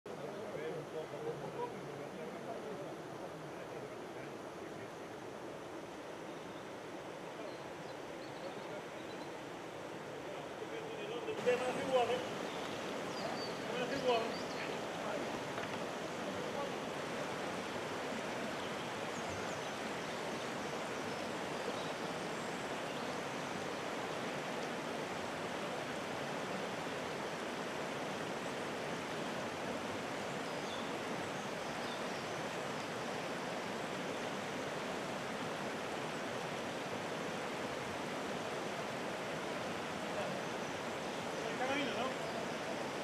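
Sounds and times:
water rushing over rocks: 8.8 - 43.0.

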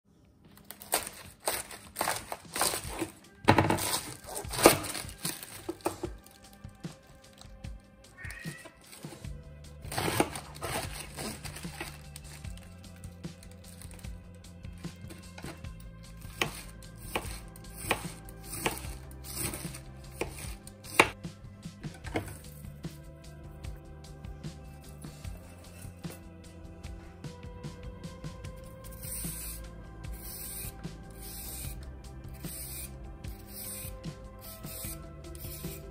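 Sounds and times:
knife crunching through cabbage: 0.6 - 7.6, 9.8 - 14.1, 16.2 - 21.2.

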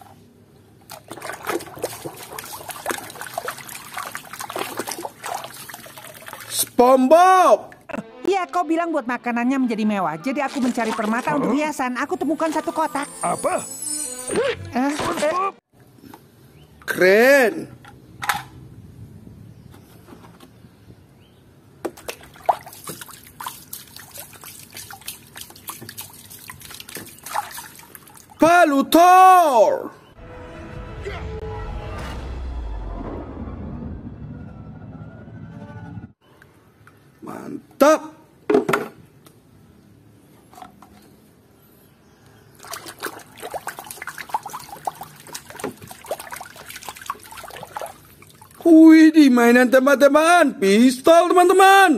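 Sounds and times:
water splashing and dripping: 0.8 - 6.8, 10.5 - 11.5, 21.8 - 28.4, 42.6 - 48.7.

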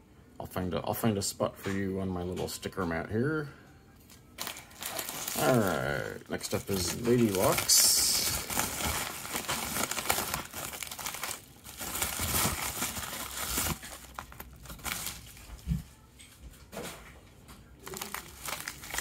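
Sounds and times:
padded envelope crinkling: 4.4 - 15.6, 17.8 - 19.0.

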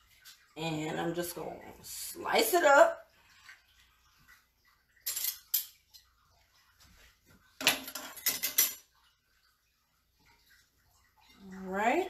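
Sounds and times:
cutlery clinking against a plate: 5.0 - 6.1, 7.6 - 8.9.

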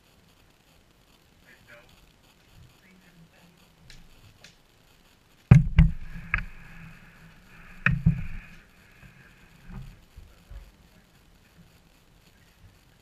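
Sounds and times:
faint high whine: 0.0 - 13.0
knocks and thumps on wooden box: 5.5 - 6.4.

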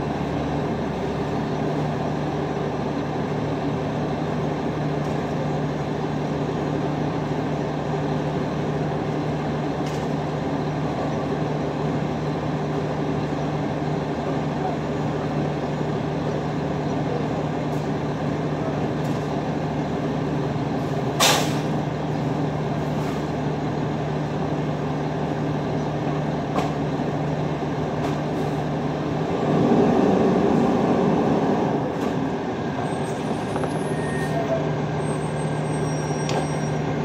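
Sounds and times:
diesel truck engine running: 0.0 - 37.0
air brakes hissing: 21.2 - 21.8, 32.8 - 36.8.

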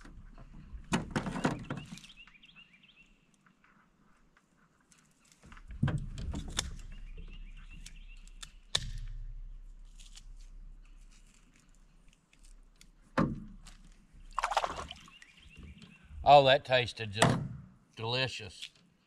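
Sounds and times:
light water splashing: 14.2 - 15.3.

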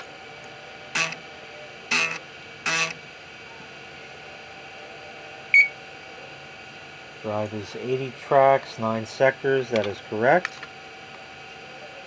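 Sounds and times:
floppy drive head buzzes: 0.0 - 6.0
machine humming: 0.0 - 12.0.

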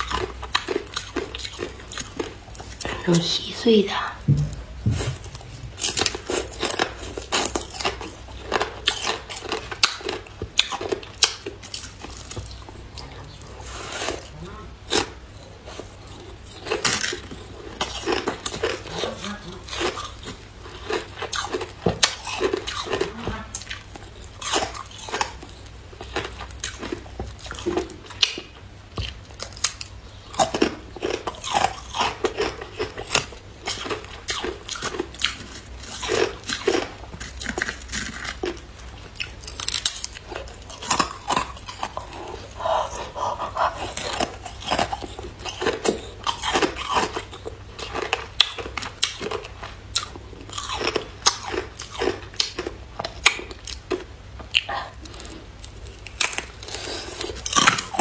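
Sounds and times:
person chewing ice: 0.0 - 3.2, 5.0 - 58.0.

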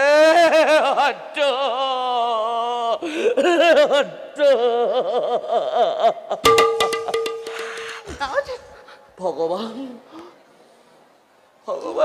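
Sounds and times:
sharp strikes: 6.5 - 8.1.

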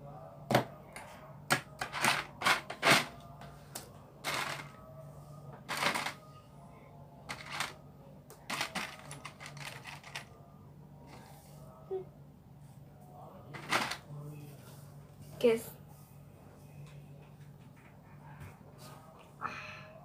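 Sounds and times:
plastic pieces clicking and rattling: 4.3 - 4.7, 5.7 - 6.2, 7.3 - 7.8, 8.5 - 10.3
plastic pieces rustling: 5.7 - 6.2.

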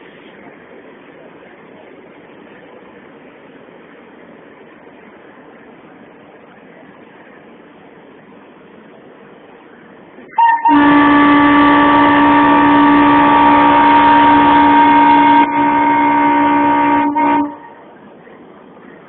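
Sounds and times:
locomotive air horn blast: 10.3 - 18.0.

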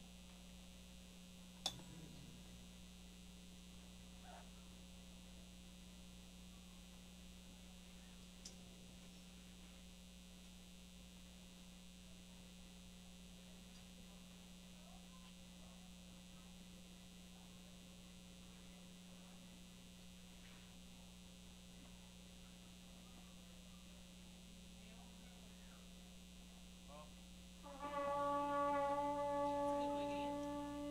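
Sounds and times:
low electrical hum: 0.0 - 30.9
faint click: 8.4 - 8.6.

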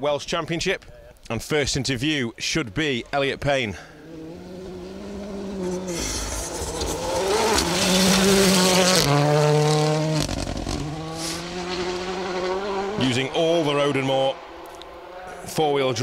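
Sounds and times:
rally car engine passing: 3.9 - 16.0.

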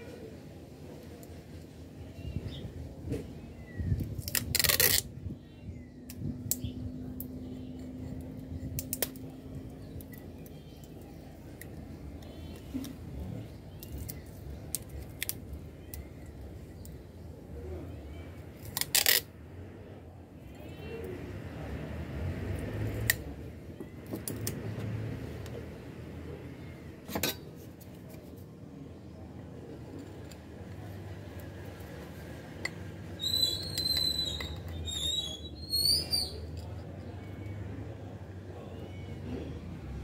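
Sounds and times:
tape handling rustles: 4.0 - 5.1
adhesive tape ripping off roll: 4.2 - 5.1, 18.6 - 19.3.

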